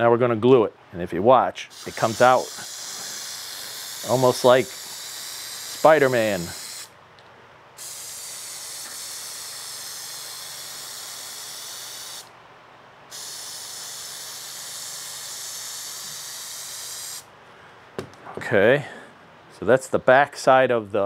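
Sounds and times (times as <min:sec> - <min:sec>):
aerosol can hissing: 0:01.7 - 0:06.9, 0:07.8 - 0:12.3, 0:13.1 - 0:17.3.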